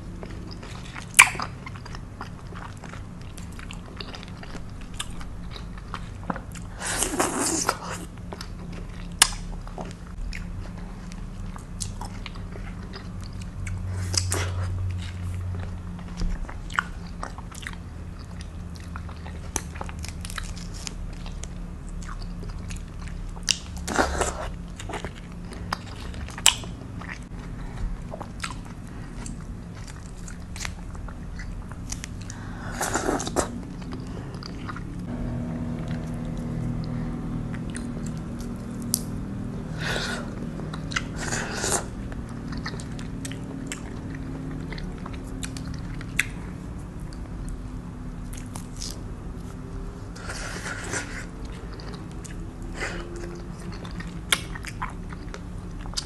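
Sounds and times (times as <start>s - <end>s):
chewing and biting fruit: 0.1s - 56.0s.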